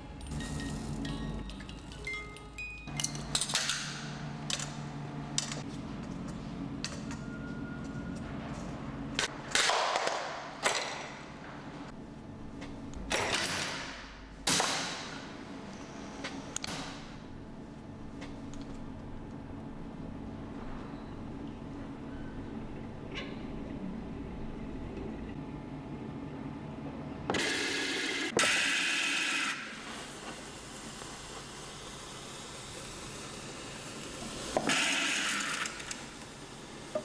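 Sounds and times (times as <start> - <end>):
steady low hum: 11.2 - 27.3.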